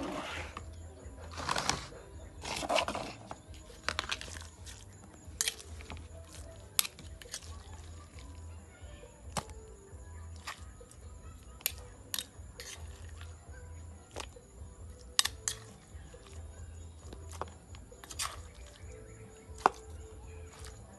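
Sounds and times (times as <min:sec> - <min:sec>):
spoon scraping stone mortar: 0:00.0 - 0:08.4, 0:10.4 - 0:13.4, 0:14.1 - 0:20.9
spoon clicking on stone: 0:05.3 - 0:07.8, 0:11.6 - 0:12.9, 0:15.1 - 0:16.3.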